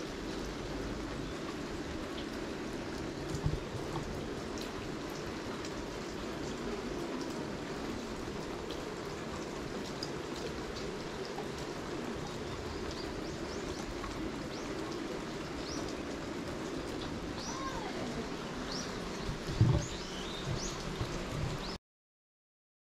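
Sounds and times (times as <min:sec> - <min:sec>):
steady rain falling: 0:00.0 - 0:21.8
small birds chirping: 0:12.7 - 0:16.0, 0:17.3 - 0:21.8.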